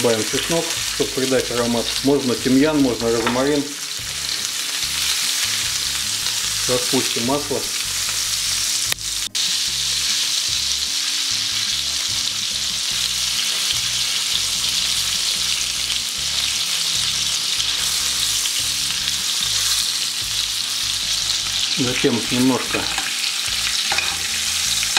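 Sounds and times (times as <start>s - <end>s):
fish sizzling in a pan: 0.0s - 24.9s.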